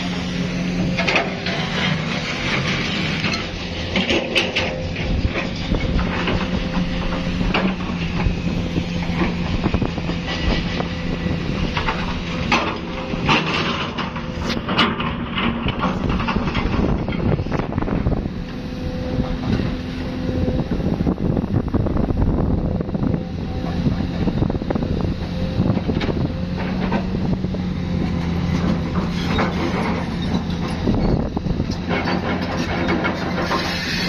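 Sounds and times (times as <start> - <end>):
metal and rubble clanking: 0.0 - 18.4, 25.6 - 34.0
heavy machinery diesel engines: 0.0 - 34.0.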